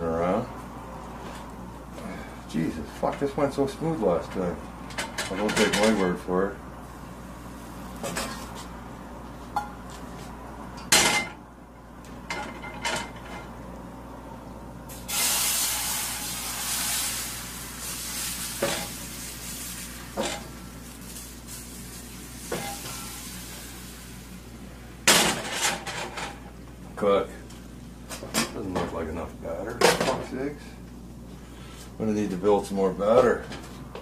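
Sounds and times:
batter sizzling in skillet: 14.9 - 24.7.

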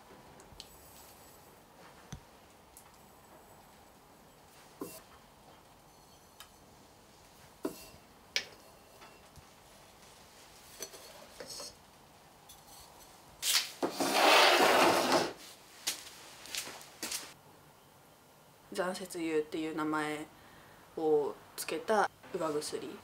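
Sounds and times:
hand scraping wooden wheel: 13.8 - 15.4.

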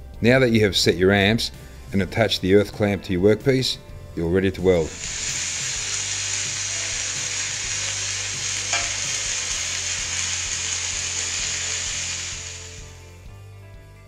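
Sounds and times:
welding arc crackling sizzle: 4.8 - 13.2.

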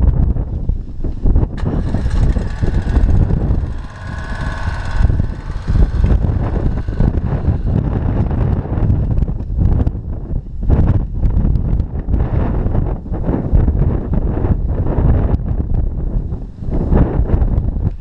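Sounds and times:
wind buffeting microphone: 0.0 - 18.0
motorcycle engine running: 1.3 - 10.2.

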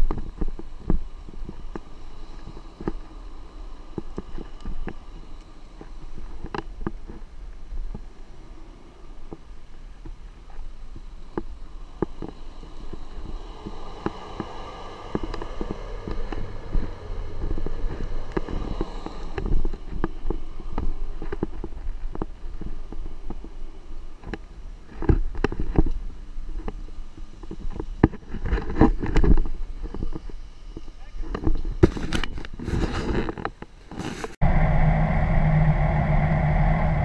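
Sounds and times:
branches scraping vehicle: 11.2 - 25.7, 31.9 - 34.4
truck rumbling on rough track: 13.0 - 22.0, 34.4 - 37.0.

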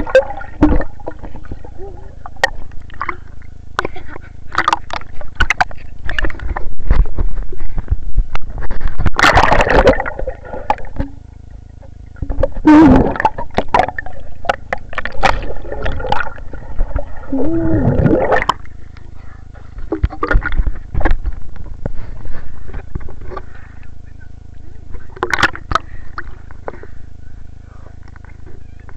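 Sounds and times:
pool water splashing and gurgling: 0.0 - 6.3, 9.2 - 19.0.

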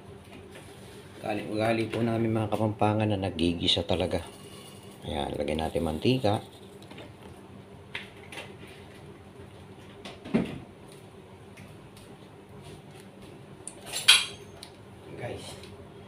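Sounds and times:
metal kitchenware clinking: 13.9 - 14.5.

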